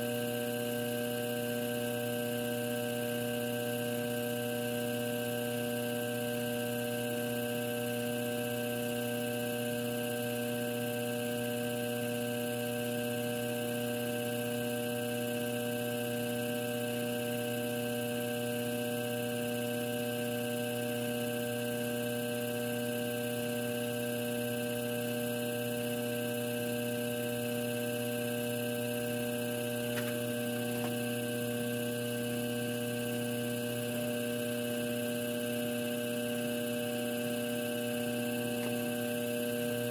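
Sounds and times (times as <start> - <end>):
potter's wheel motor humming: 24.1 - 39.9.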